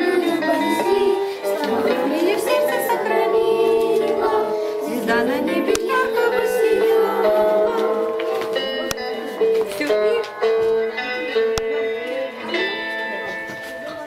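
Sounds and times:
several voices singing: 0.0 - 8.6.

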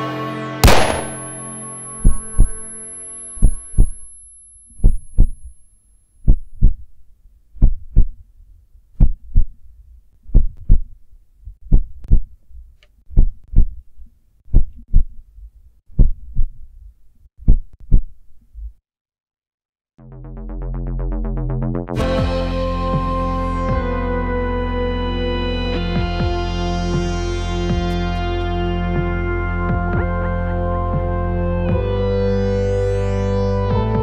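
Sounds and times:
high ringing tone: 0.6 - 6.0
heartbeat double thump: 3.4 - 4.1, 4.8 - 5.5, 6.2 - 6.9, 7.6 - 8.2, 9.0 - 9.6, 10.2 - 10.9, 11.6 - 12.3, 13.1 - 13.8, 14.5 - 15.2, 15.9 - 16.5, 17.4 - 18.1.

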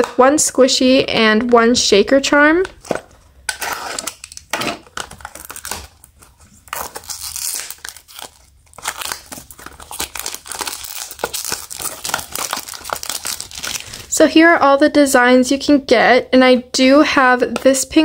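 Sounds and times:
packaging crinkling and tearing: 2.7 - 14.1.

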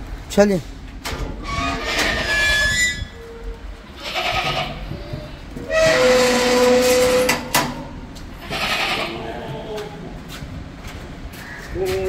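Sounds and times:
goats bleating: 4.0 - 4.9, 8.4 - 10.0.

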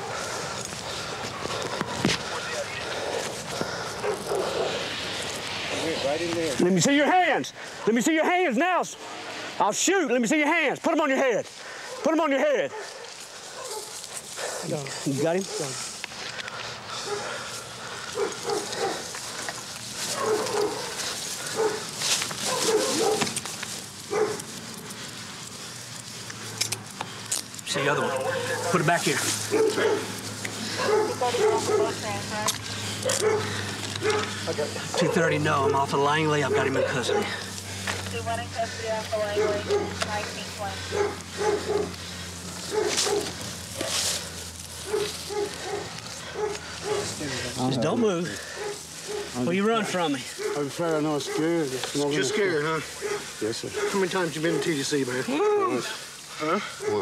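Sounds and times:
rustling: 0.0 - 6.9, 11.4 - 57.0
dog barking: 4.0 - 4.8, 11.9 - 14.0, 15.5 - 15.8, 17.0 - 17.4, 18.1 - 19.1, 20.1 - 23.3, 24.1 - 24.4, 27.7 - 30.1, 30.7 - 32.3, 33.0 - 37.4, 39.2 - 42.0, 42.6 - 44.0, 44.8 - 47.2, 48.5 - 54.8, 56.8 - 57.0.

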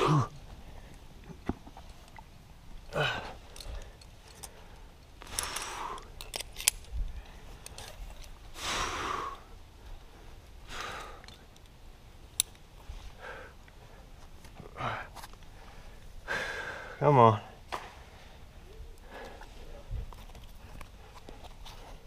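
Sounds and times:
heavy breathing exhalations: 2.9 - 6.2, 7.1 - 11.4, 12.9 - 14.1, 14.7 - 17.0, 19.0 - 22.0.

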